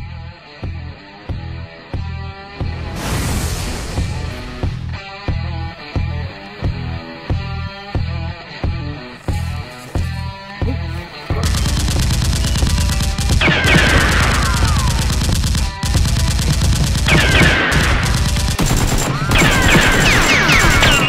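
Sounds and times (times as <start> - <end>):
automatic gunfire: 11.4 - 21.0
falling whistles: 19.1 - 21.0.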